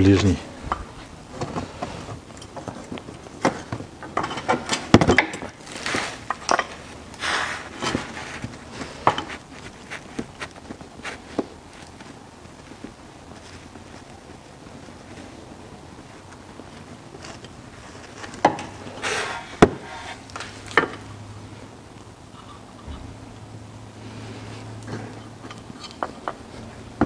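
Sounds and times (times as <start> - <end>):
hands handling hose clicks and knocks: 1.4 - 7.0.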